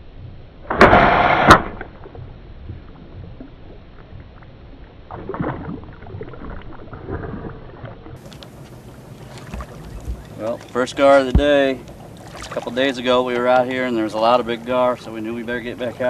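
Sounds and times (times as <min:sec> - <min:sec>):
sharp crack: 0:00.6 - 0:02.3
bow release and rush: 0:00.6 - 0:03.4
fish splashing at the surface: 0:11.9 - 0:12.9.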